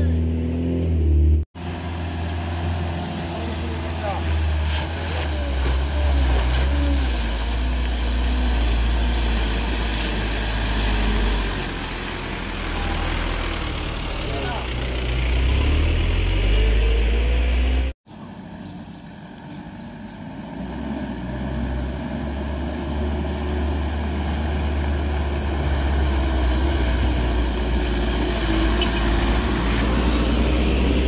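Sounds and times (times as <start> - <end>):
truck diesel engines passing: 0.0 - 31.0.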